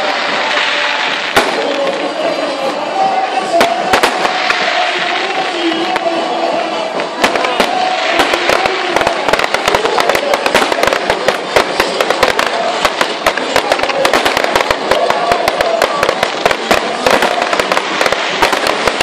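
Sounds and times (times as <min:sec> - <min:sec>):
fireworks bursting and crackling: 0:00.0 - 0:19.0.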